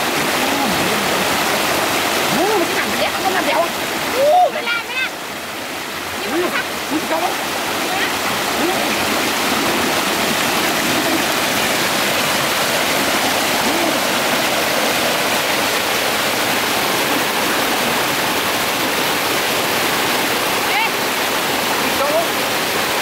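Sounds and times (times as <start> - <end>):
stream rushing over rocks: 0.0 - 23.0.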